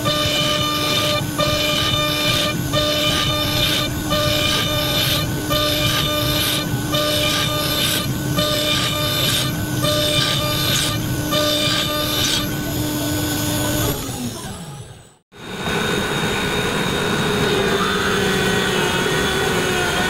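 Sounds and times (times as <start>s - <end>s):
bit cutting into wood: 0.0s - 14.1s
router spindle whining: 0.0s - 20.0s.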